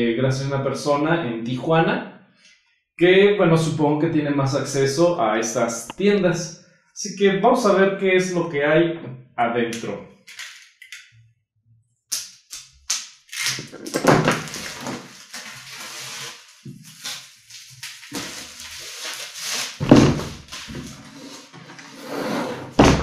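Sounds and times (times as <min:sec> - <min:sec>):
shrink wrap crinkling: 0:10.3 - 0:11.0, 0:13.1 - 0:21.5.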